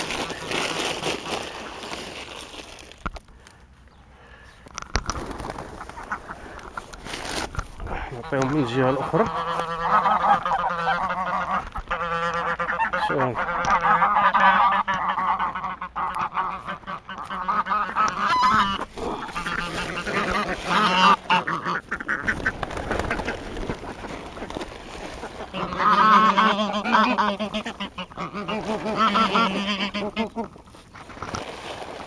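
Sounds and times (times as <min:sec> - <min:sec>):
geese honking: 0:08.1 - 0:24.0, 0:25.2 - 0:30.5.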